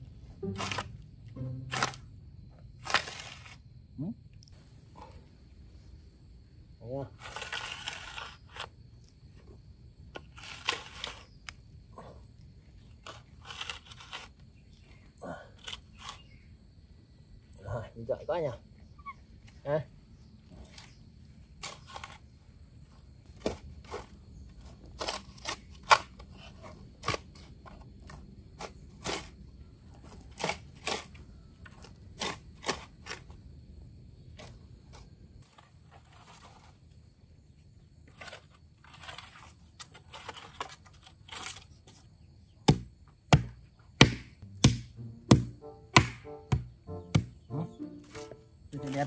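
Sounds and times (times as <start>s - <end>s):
shovel knocking in soil: 0.4s - 2.1s, 42.7s - 49.0s
shovel scraping soil: 0.4s - 2.1s, 2.8s - 3.6s, 7.1s - 8.8s, 10.2s - 11.4s, 12.9s - 14.4s, 21.6s - 22.3s, 34.4s - 36.8s, 38.1s - 42.1s
heavy shovel thuds: 43.4s - 48.4s.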